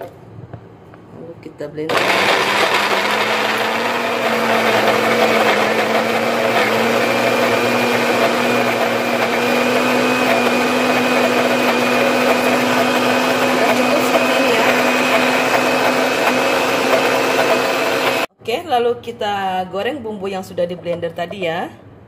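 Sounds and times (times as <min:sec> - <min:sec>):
blender motor whirring: 0:01.9 - 0:18.3.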